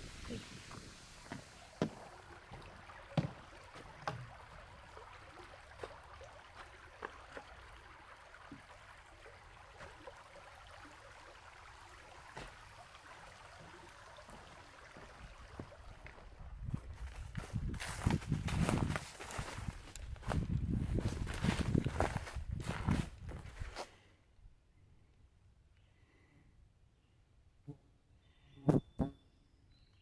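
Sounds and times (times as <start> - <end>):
outdoor hush: 0.0 - 9.4, 23.9 - 30.0
footsteps on wooden boards: 0.7 - 4.3.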